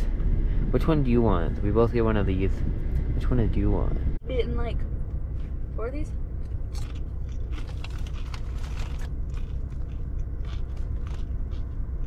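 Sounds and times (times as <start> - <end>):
steady low rumble: 0.0 - 12.0
chips crunching: 6.7 - 12.0.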